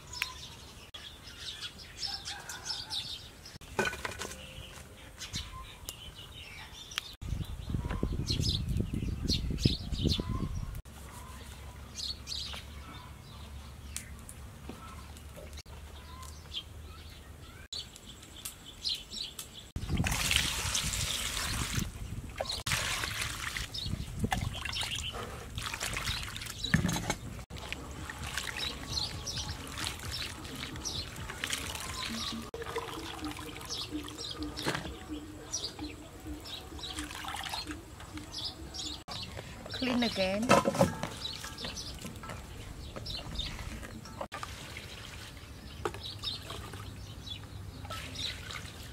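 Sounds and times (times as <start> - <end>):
birds chirping: 0.0 - 20.0, 20.6 - 48.9
water sloshing: 19.8 - 38.8, 39.4 - 47.1, 47.7 - 48.9.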